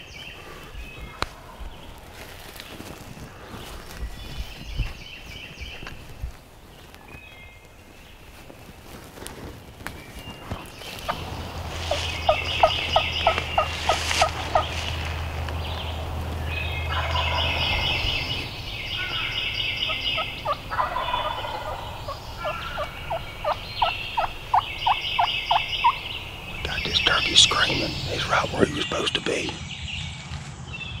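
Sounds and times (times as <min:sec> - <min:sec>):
turkey gobbling: 0:11.1 - 0:26.3
turkey yelps: 0:11.9 - 0:14.7, 0:16.9 - 0:18.3, 0:19.0 - 0:26.1.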